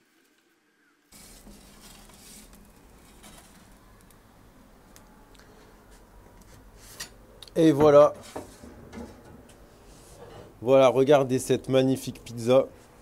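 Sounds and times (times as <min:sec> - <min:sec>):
pizza peel scraping oven floor: 0:01.1 - 0:03.8
steady hiss: 0:01.1 - 0:07.1.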